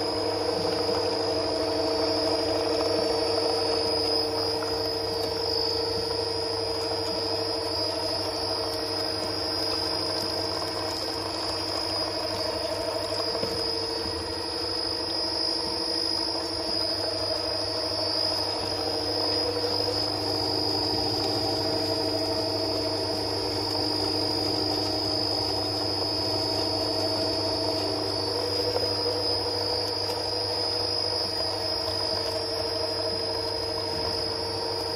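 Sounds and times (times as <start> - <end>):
high-pitched machine whine: 0.0 - 34.9
oil press machine humming: 0.0 - 34.9.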